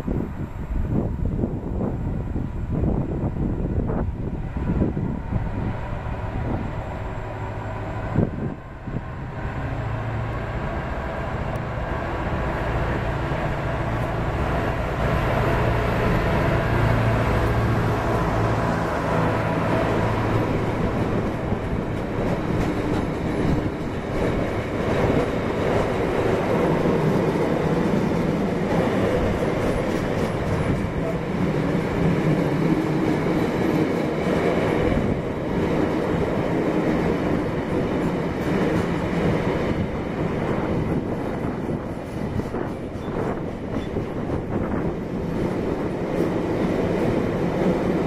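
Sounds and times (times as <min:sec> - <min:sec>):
diesel locomotive engine: 0:00.0 - 0:48.0
wagons rumbling on rails: 0:00.0 - 0:48.0.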